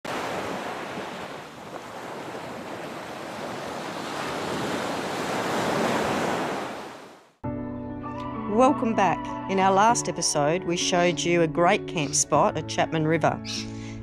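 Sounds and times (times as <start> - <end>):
waves breaking on a beach: 0.0 - 7.3.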